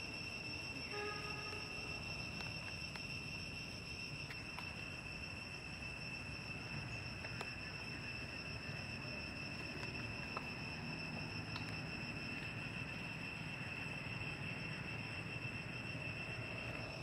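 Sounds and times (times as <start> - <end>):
insects droning: 0.0 - 17.0
faint clicks: 7.2 - 7.6, 11.5 - 11.8.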